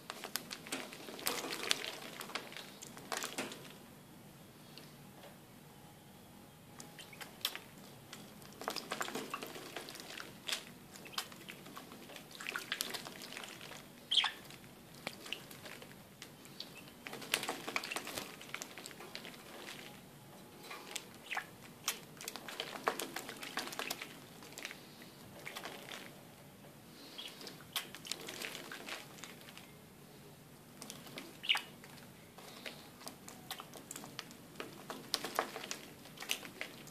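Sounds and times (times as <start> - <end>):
bird splashing in water: 8.6 - 14.4.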